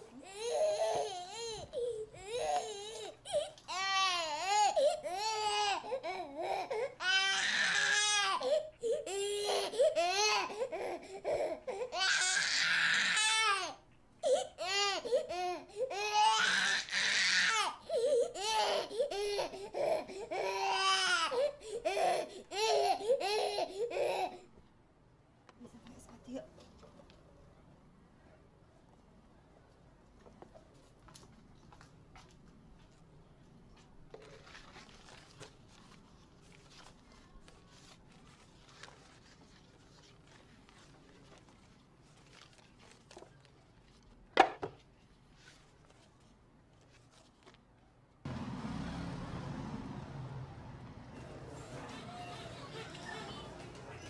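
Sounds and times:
infant crying: 0.0s - 24.5s
infant screaming: 6.5s - 8.5s, 14.6s - 17.8s.

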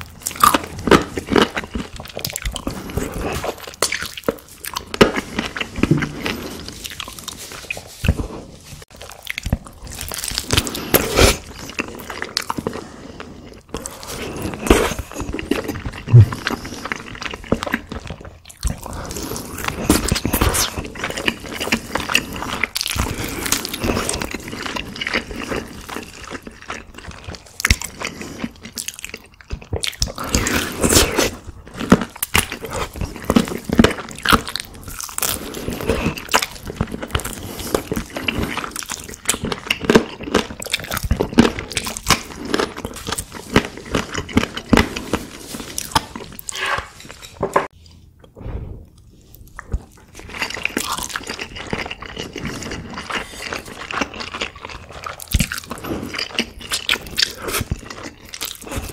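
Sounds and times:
biting and chewing chicken: 0.0s - 47.4s, 49.6s - 58.9s
meat tearing and crunching: 28.6s - 46.5s.

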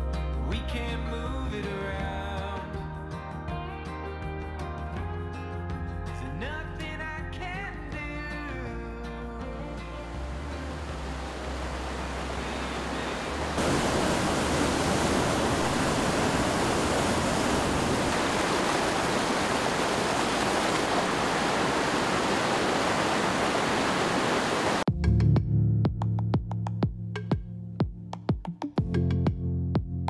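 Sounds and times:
creek water rushing: 10.0s - 24.9s.

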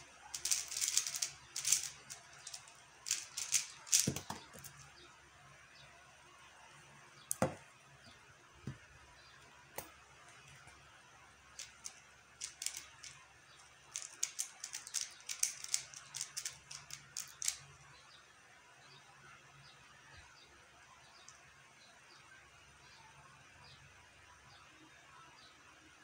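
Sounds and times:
puzzle cube plastic clicking: 0.4s - 4.8s, 11.6s - 13.2s, 13.9s - 17.7s.

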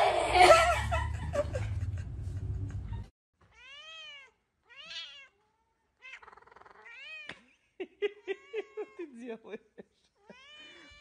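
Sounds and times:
cat meowing: 3.5s - 7.3s, 10.2s - 11.0s.

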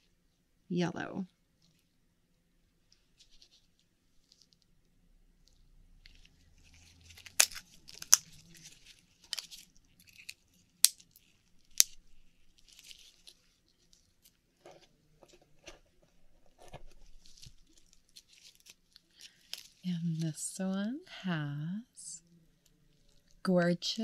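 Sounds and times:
scraping and rustling: 2.9s - 4.7s, 5.4s - 20.3s.

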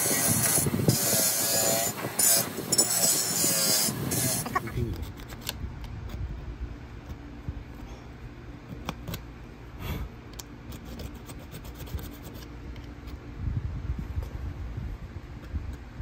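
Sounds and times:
blade scraping metal: 0.0s - 5.2s.

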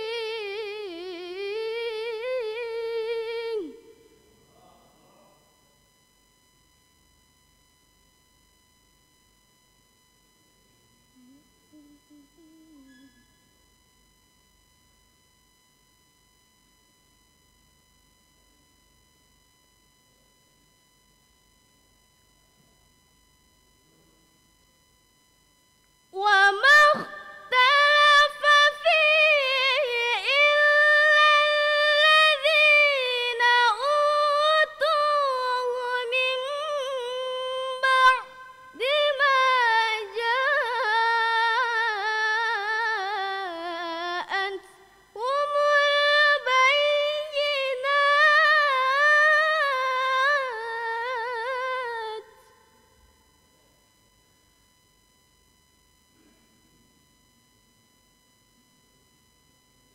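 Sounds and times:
girl reciting melodically: 26.2s - 51.8s.

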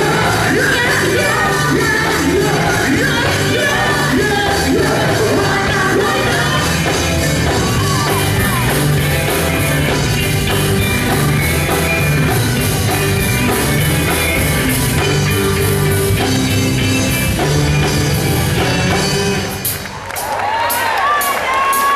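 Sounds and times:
gospel group singing with band: 0.0s - 10.0s
person shouting over music: 7.6s - 9.0s.

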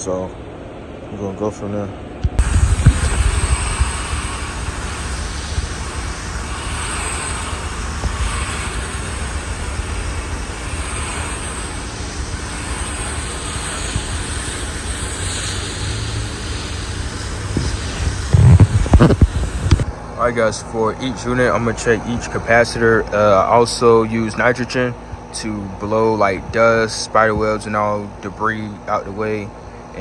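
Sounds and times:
steady low rumble: 2.2s - 23.9s
hose spraying water on metal fins: 2.4s - 19.8s.

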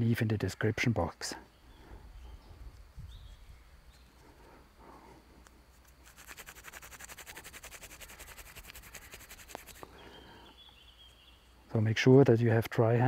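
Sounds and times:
palms rubbing together: 5.4s - 11.2s.

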